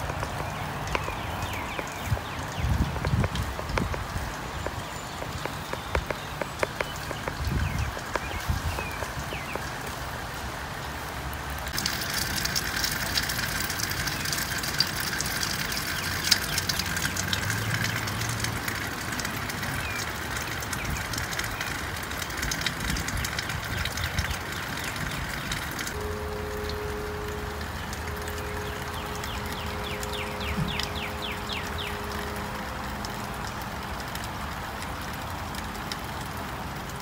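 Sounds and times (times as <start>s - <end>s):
low uneven rumble: 0.0s - 37.0s
rain on grass and leaves: 0.0s - 37.0s.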